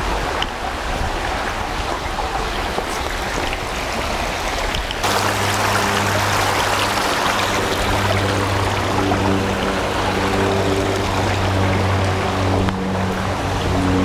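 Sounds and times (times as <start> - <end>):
stream flowing: 0.0 - 14.0
steady low hum: 3.2 - 14.0.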